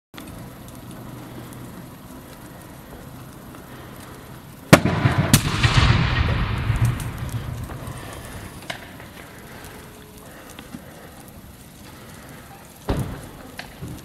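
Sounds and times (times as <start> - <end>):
fire roaring and crackling: 0.1 - 14.0
hissing: 0.2 - 14.0
loud bangs from burning car: 4.7 - 8.0, 12.9 - 14.0.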